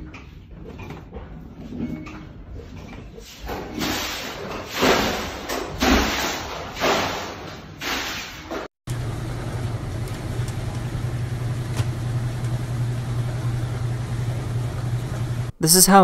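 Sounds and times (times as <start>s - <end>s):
bathwater sloshing and splashing: 3.2s - 8.7s.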